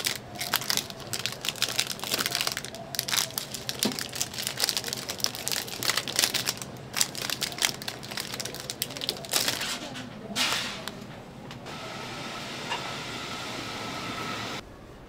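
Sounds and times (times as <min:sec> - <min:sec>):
crinkling and crackling: 0:00.0 - 0:11.6.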